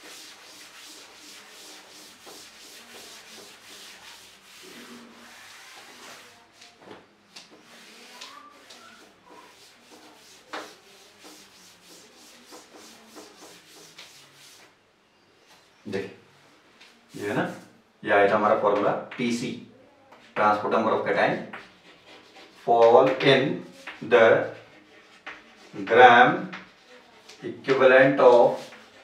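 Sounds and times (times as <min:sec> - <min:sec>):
cloth rubbing on blackboard: 0:00.0 - 0:14.8, 0:16.9 - 0:17.8, 0:21.6 - 0:29.0.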